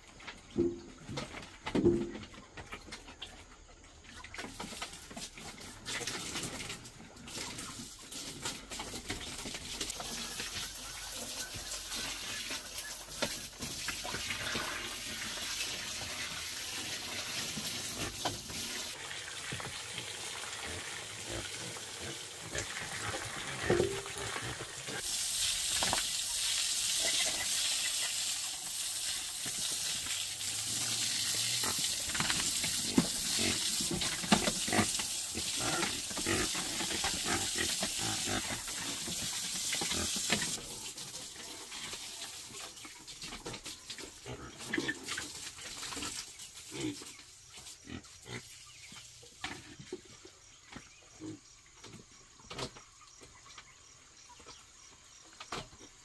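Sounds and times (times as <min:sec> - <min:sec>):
pigs eating: 0:17.0 - 0:41.9
steady hiss: 0:24.9 - 0:40.5.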